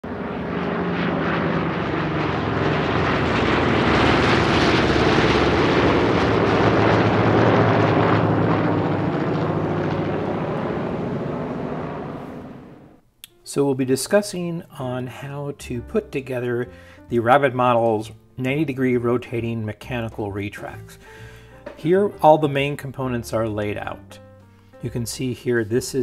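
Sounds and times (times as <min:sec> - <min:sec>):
model airplane motor and propeller: 0:00.0 - 0:12.8.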